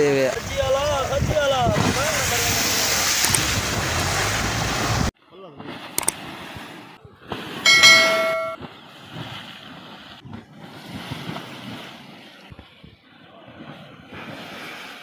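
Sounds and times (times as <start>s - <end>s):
river water rushing and splashing: 2.5s - 5.1s
bell-like chime: 7.7s - 8.6s.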